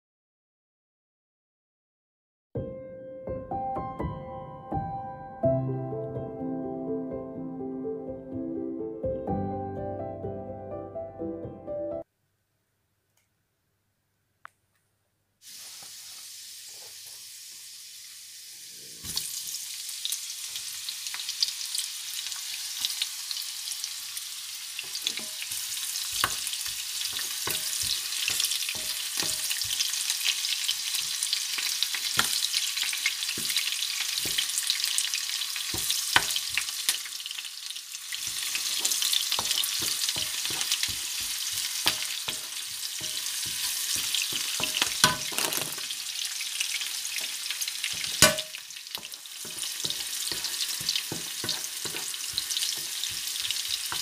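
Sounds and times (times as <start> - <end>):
onions sizzling in oil: 15.4 - 54.0
wooden spatula scraping pan: 38.2 - 45.1, 49.0 - 54.0.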